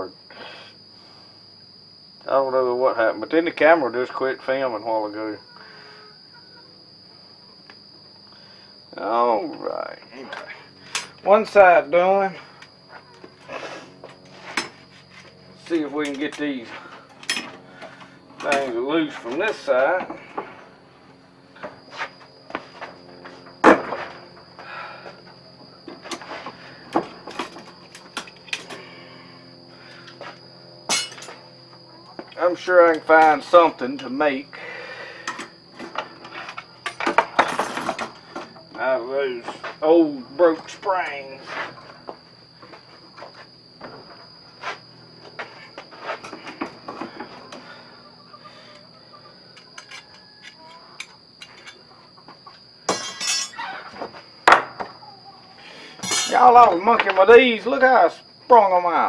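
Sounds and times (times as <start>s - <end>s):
insect trill: 0.0s - 59.0s
man sniffing: 13.5s - 14.0s
steel trap parts clanking: 30.9s - 31.4s, 52.9s - 53.7s, 56.0s - 56.7s.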